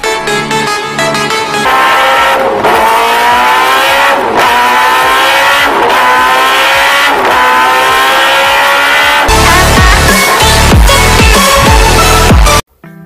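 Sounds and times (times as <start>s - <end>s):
electronic music with heavy bass: 0.0s - 12.6s
engine revving through gears: 1.6s - 11.0s.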